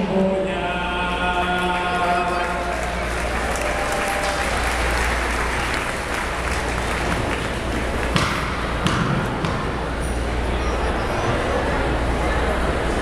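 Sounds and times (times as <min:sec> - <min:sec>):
audience applauding: 0:01.5 - 0:08.8.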